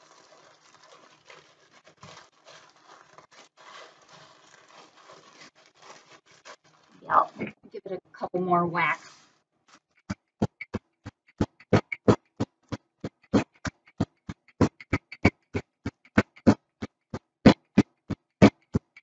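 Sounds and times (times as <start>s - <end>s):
rolling pin pounding crackers: 10.0s - 19.0s.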